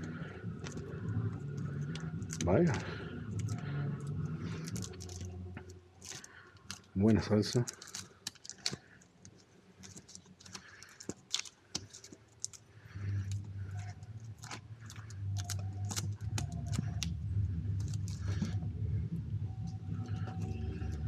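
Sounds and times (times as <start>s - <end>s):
record sleeves clicking and knocking: 0.0s - 2.6s, 6.0s - 18.6s
low rumble: 0.0s - 6.1s, 12.9s - 21.0s.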